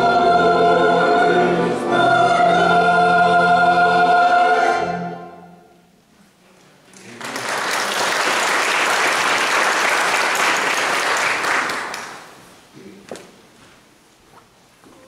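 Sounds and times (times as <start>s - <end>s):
choir singing held chord: 0.0s - 5.7s
congregation applauding: 6.9s - 12.4s.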